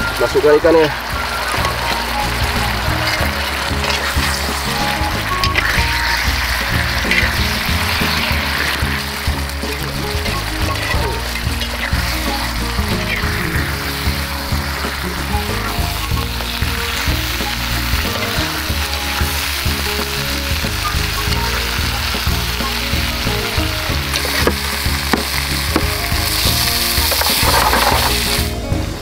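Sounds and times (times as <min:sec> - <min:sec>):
fish sizzling in a pan: 0:00.0 - 0:28.6
metal spatula scraping pan: 0:01.0 - 0:28.4.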